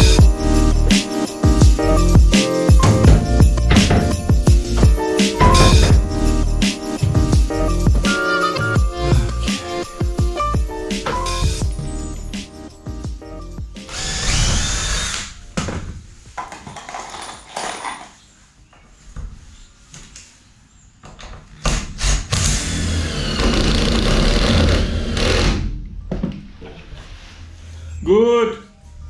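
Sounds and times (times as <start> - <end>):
drill driving screws into wood: 13.9 - 15.4, 21.7 - 25.6.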